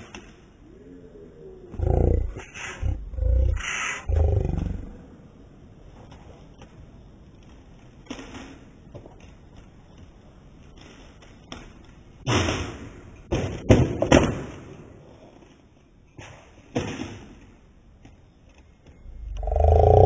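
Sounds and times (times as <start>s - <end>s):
skateboard hitting tile floor: 7.4s - 18.7s.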